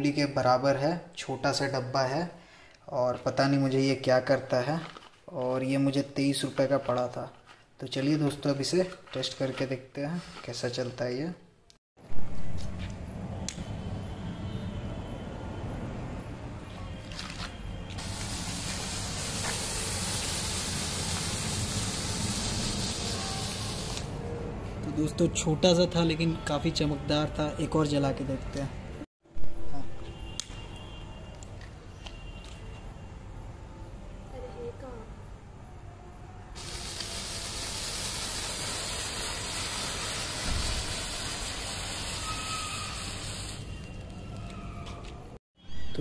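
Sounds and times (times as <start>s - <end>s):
firework spouting sparks hissing: 18.0s - 24.1s, 36.6s - 44.0s.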